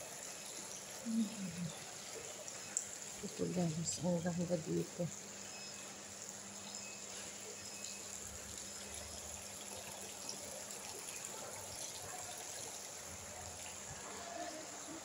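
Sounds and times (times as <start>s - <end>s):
faint hiss of background noise: 0.0s - 15.0s.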